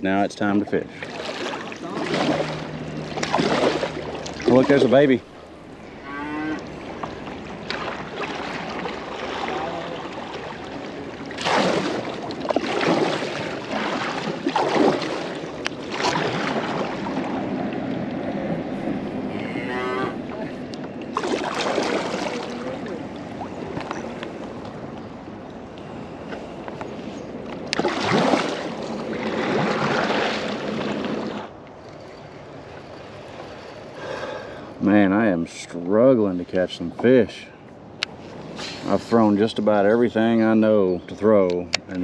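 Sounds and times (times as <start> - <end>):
paddle strokes splashing: 0.8 - 24.8, 25.9 - 34.0
cattle mooing: 5.8 - 6.9, 19.3 - 20.5.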